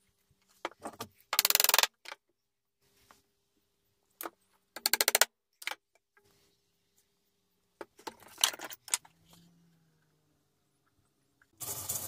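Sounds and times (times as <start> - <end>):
small hammer tapping wooden pegs: 4.8 - 5.8.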